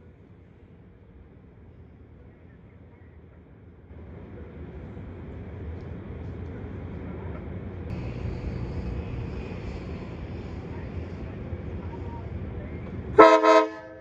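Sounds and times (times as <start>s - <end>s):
diesel locomotive rumble: 0.0s - 14.0s
steady hiss: 7.9s - 12.5s.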